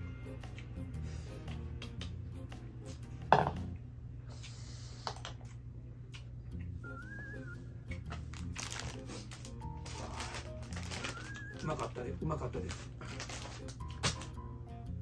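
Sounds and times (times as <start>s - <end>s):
soft background music: 0.0s - 4.1s, 6.4s - 15.0s
rustling: 8.1s - 12.0s.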